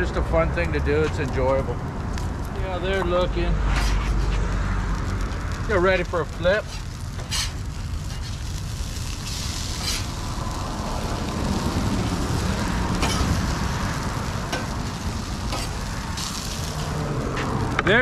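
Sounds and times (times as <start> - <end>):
hash browns sizzling on griddle: 0.0 - 18.0
steady low rumble: 0.0 - 18.0
metal spatula scraping steel: 9.2 - 10.1.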